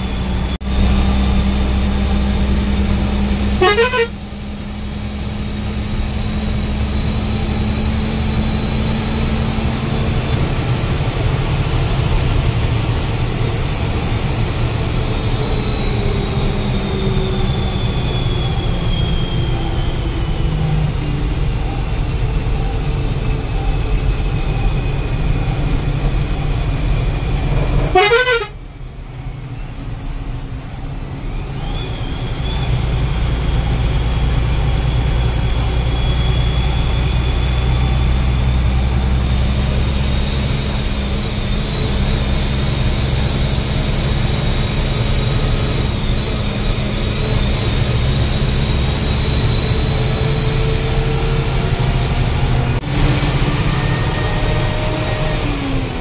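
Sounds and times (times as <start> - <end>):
bus engine and road rumble: 0.0 - 56.0
vehicle horns: 3.6 - 4.3, 27.8 - 28.6.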